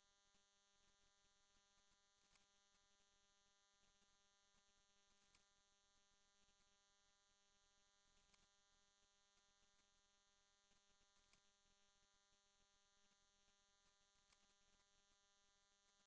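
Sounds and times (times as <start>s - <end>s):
faint electrical hum and hiss: 0.0s - 16.0s.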